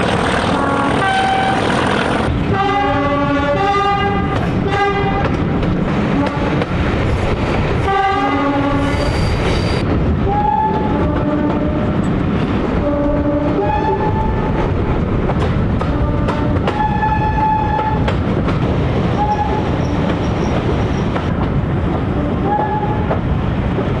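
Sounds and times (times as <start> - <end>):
train coach rumble: 0.0 - 24.0
train two-tone horn: 0.4 - 1.9, 2.5 - 5.4, 6.1 - 6.6, 7.8 - 9.4, 10.2 - 12.0, 12.8 - 14.5, 15.8 - 18.1, 19.2 - 19.7, 22.1 - 23.1.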